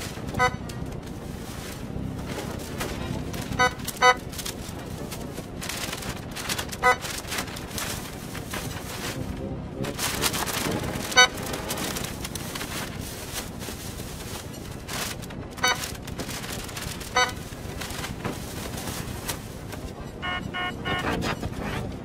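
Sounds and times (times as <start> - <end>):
store background noise: 0.0 - 22.0
checkout scanner beeps: 0.3 - 0.9, 3.5 - 4.3, 6.8 - 7.0, 10.7 - 11.8, 15.6 - 15.9, 17.1 - 17.5, 19.8 - 21.9.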